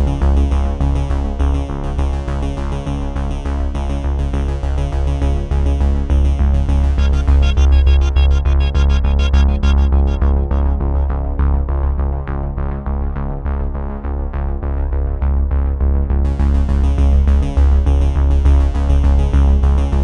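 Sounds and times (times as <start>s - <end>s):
pulsing bass: 0.0s - 20.0s
synthesizer plucked notes: 6.6s - 12.2s.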